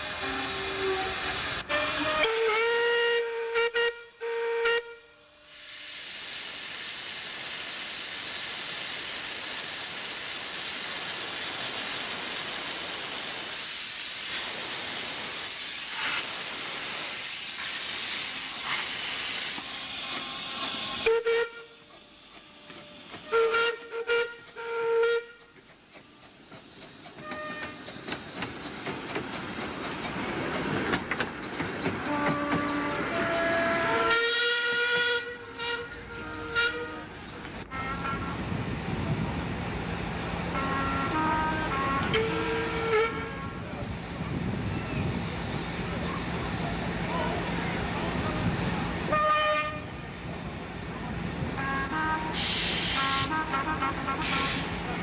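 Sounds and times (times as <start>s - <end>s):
steam hissing: 0.0s - 3.0s, 5.2s - 37.6s, 50.4s - 55.0s
steam whistle toots: 0.2s - 5.6s, 20.9s - 21.8s, 23.2s - 25.4s, 32.1s - 37.1s, 40.6s - 43.6s, 51.6s - 54.7s
train moving off: 5.5s - 24.7s, 25.4s - 55.0s.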